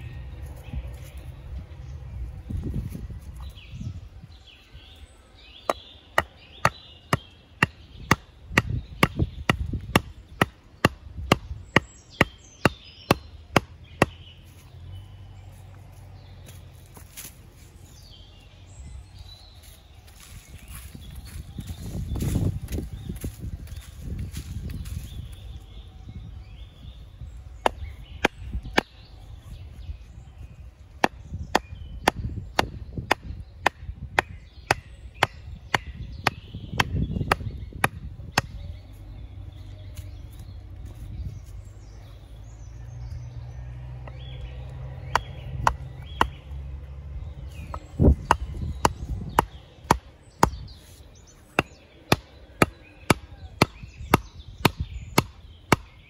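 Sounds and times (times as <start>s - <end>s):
axe chopping wood: 5.7s - 14.2s, 27.6s - 29.0s, 31.0s - 38.6s, 45.0s - 46.4s, 47.6s - 50.7s, 51.5s - 56.0s.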